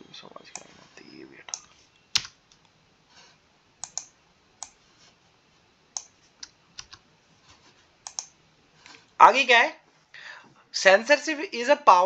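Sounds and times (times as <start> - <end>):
computer mouse and keyboard clicks: 3.8 - 4.8, 6.0 - 7.0, 8.0 - 8.3.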